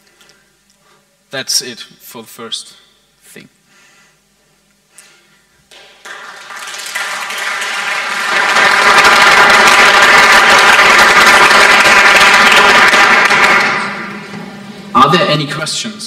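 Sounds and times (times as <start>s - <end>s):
audience applauding: 5.7s - 14.1s.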